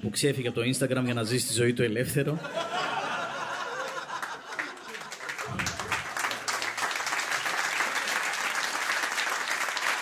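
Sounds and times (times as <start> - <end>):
audience laughing: 2.4 - 6.8
audience applauding: 3.6 - 10.0.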